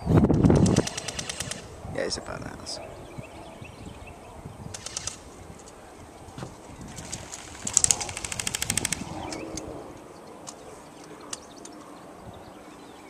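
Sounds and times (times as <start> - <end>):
sharp clicks: 0.3 - 1.7, 4.7 - 5.8, 7.0 - 9.7, 10.4 - 11.8
airsoft gun full-auto burst: 0.6 - 1.7, 4.8 - 5.2
birds chirping faintly: 1.7 - 13.0.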